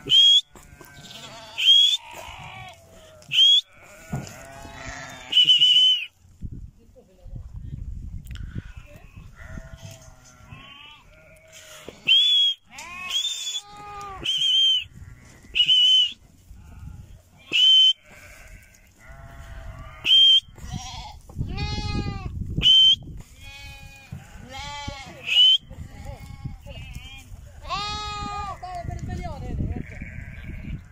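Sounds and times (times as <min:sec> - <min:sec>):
sheep bleating: 0:00.0 - 0:05.5, 0:09.3 - 0:11.9, 0:12.7 - 0:16.0, 0:16.6 - 0:22.3, 0:23.4 - 0:29.0, 0:29.7 - 0:30.9
sharp high whistles: 0:00.1 - 0:00.5, 0:01.6 - 0:02.0, 0:03.3 - 0:03.7, 0:05.3 - 0:06.1, 0:12.1 - 0:14.9, 0:15.6 - 0:16.2, 0:17.5 - 0:18.0, 0:20.0 - 0:20.5, 0:22.6 - 0:23.0, 0:25.2 - 0:25.7.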